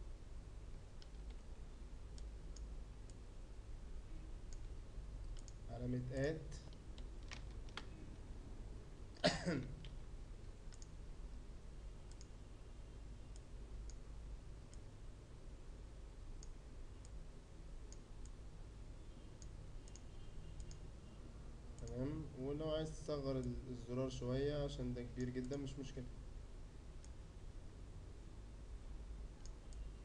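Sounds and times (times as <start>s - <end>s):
computer mouse clicking: 0.8s - 1.5s, 2.1s - 3.2s, 4.5s - 5.6s, 6.6s - 8.0s, 9.8s - 11.0s, 12.0s - 12.4s, 13.3s - 14.0s, 16.4s - 17.2s, 19.4s - 20.8s, 29.4s - 29.9s.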